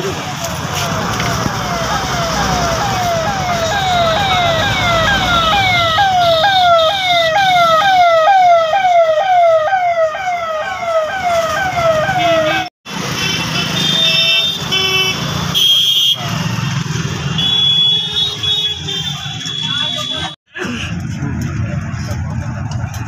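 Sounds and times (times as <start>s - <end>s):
police siren sweeping: 0.0s - 12.7s
road traffic noise: 0.0s - 23.0s.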